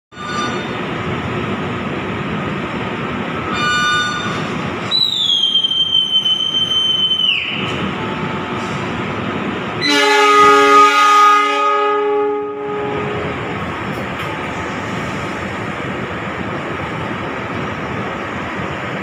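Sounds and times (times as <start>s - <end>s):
train carriages running: 0.1s - 19.0s
conductor's whistle blast: 4.8s - 7.6s
locomotive horn: 9.8s - 13.3s.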